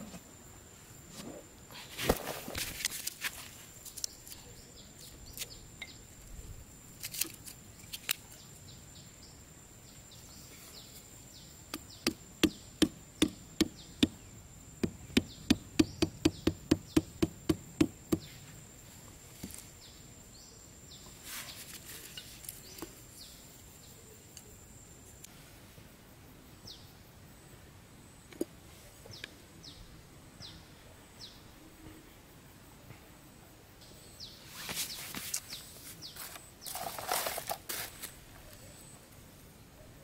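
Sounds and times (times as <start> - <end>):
machete knocking on wooden stick: 11.7 - 14.2, 14.8 - 18.3.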